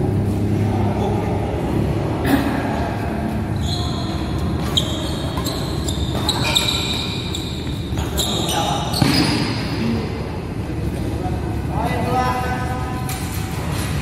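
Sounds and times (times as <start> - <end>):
sneakers squeaking on court floor: 3.3 - 9.8.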